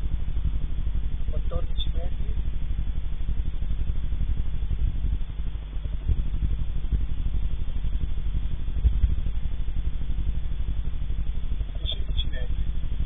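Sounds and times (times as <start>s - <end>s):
low fluttering rumble: 0.0s - 13.0s.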